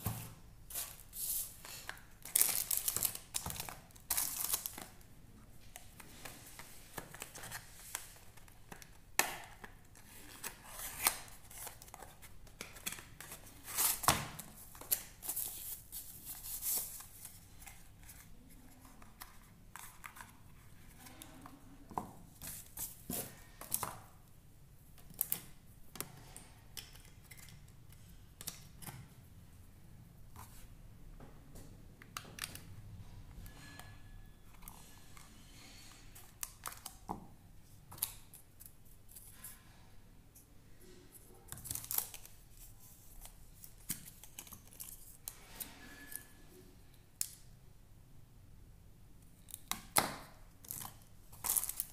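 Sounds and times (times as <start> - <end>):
foam plastic wrapping crinkling: 0.8 - 4.8.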